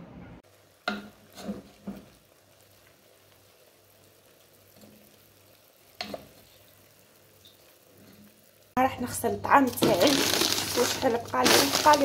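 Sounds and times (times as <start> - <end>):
wooden spoon stirring in a pot: 0.5 - 3.7, 9.5 - 12.0.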